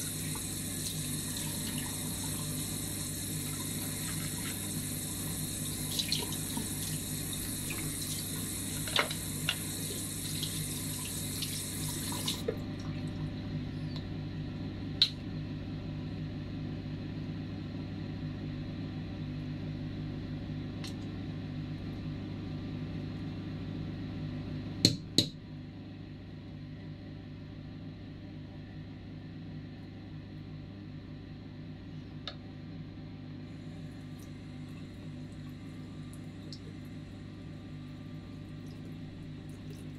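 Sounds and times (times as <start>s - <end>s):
tap water running into sink: 0.0s - 12.6s.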